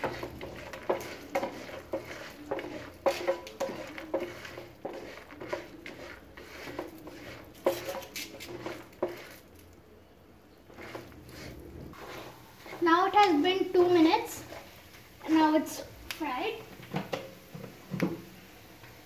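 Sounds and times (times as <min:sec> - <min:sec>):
wooden spatula scraping a frying pan: 0:00.0 - 0:09.6, 0:10.7 - 0:15.7
nuts frying in oil: 0:00.0 - 0:09.9, 0:10.6 - 0:19.0.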